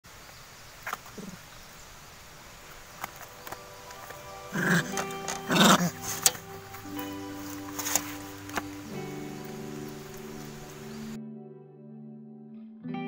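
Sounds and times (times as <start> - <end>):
background music of held notes: 3.2 - 13.0
monkey harsh cries: 4.5 - 6.0.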